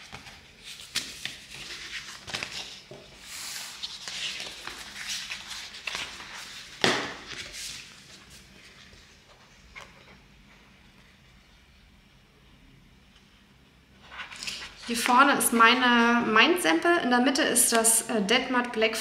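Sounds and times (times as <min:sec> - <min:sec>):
vinyl film rustling: 0:00.0 - 0:10.0.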